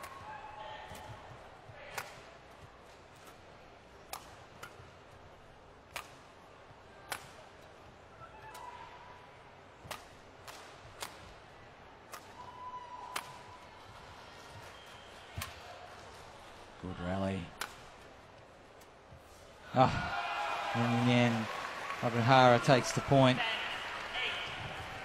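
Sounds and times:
racket striking shuttlecock: 0.9 - 2.3, 4.0 - 4.9, 5.9 - 6.3, 7.0 - 7.5, 9.8 - 11.4, 13.1 - 13.5, 17.6 - 18.1.

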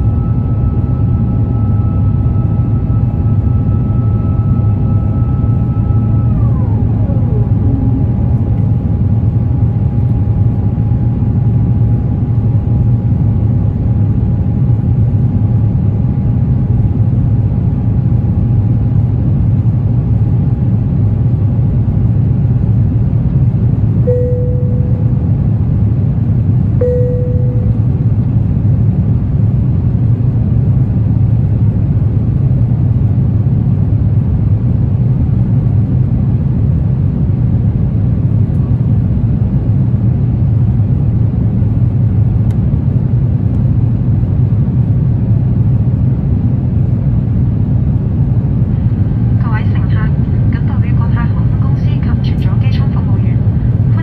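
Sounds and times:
high whine dropping in pitch: 0.0 - 10.0, 24.0 - 26.0, 26.7 - 28.2
airplane cabin rumble: 0.0 - 54.0
short tones: 24.1 - 25.3, 26.8 - 28.0.

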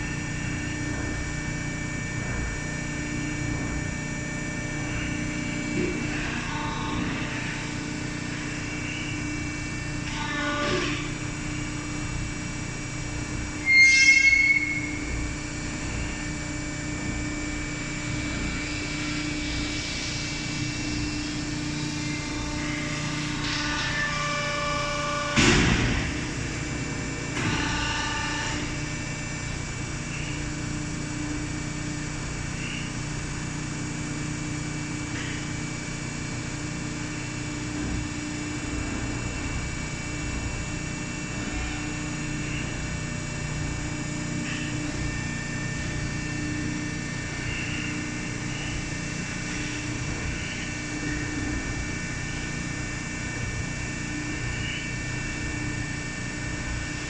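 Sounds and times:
high squeal: 13.6 - 15.0.

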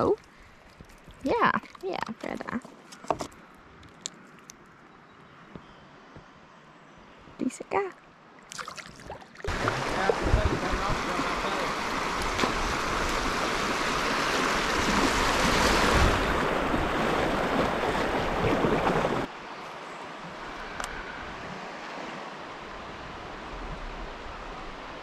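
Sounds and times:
rushing river water: 8.2 - 25.0.

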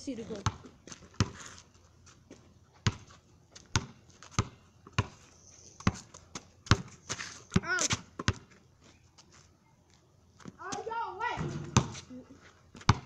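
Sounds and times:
basketball bouncing on pavement: 0.1 - 1.4, 2.3 - 5.2, 5.8 - 8.6, 10.5 - 12.1, 12.7 - 13.0.

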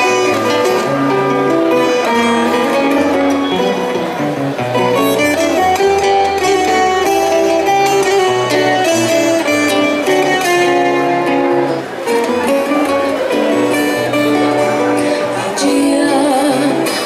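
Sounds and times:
acoustic guitars playing: 0.0 - 17.0.

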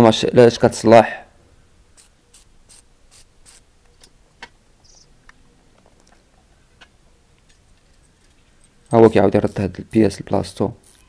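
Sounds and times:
metal parts clicking: 10.8 - 11.0.

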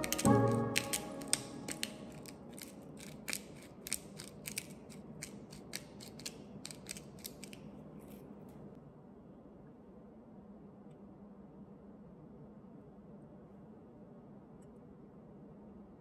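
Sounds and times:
pepper mill grinding: 0.0 - 8.2.

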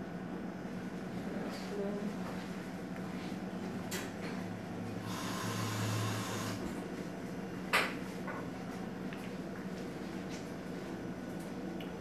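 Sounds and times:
coffee maker humming: 0.0 - 12.0
coffee maker hissing: 5.0 - 6.8.

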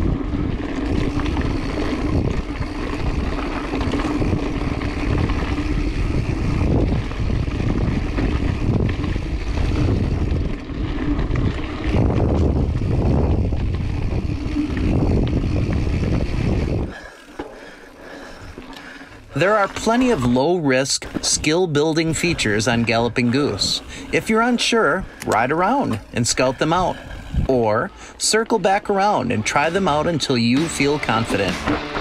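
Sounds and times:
wind rumble on microphone: 0.0 - 17.1, 25.0 - 27.9
bike tyres on dirt trail: 0.0 - 32.0.

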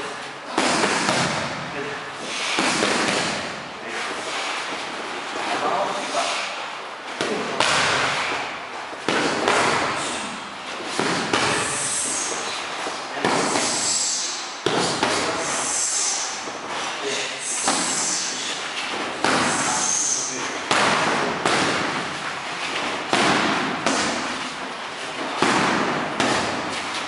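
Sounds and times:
boxing gloves slapping mitts: 0.5 - 1.7, 2.4 - 3.6, 7.2 - 16.8, 17.4 - 19.8, 20.4 - 27.0.

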